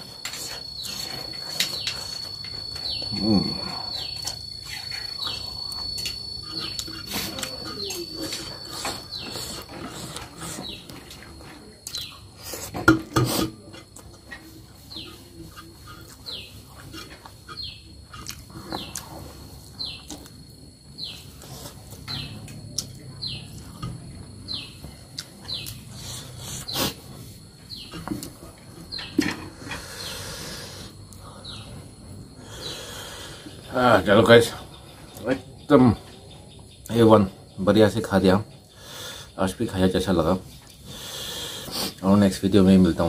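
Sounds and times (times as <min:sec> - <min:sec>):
bird chirping: 0:00.0 - 0:11.1, 0:14.8 - 0:20.3, 0:21.0 - 0:27.0, 0:27.7 - 0:28.2, 0:28.8 - 0:40.1
chewing and lip smacking: 0:15.0 - 0:19.1.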